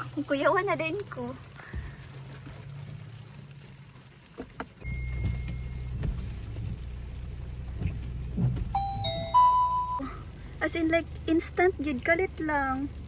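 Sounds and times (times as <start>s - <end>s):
car engine starting and idling: 0.0s - 13.0s
high electronic chime: 8.8s - 10.0s.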